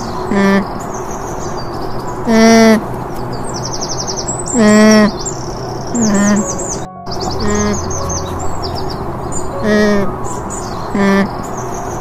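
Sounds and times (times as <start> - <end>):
small birds chirping: 0.0 - 12.0
alpaca humming: 4.6 - 5.1, 6.0 - 6.8, 7.4 - 8.4, 9.6 - 10.1, 10.9 - 11.3.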